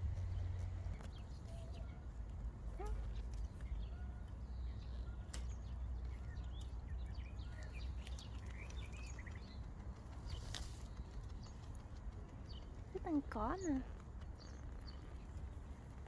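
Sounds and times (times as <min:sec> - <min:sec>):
low rumble: 0:00.0 - 0:03.8
small birds chirping: 0:00.0 - 0:16.0.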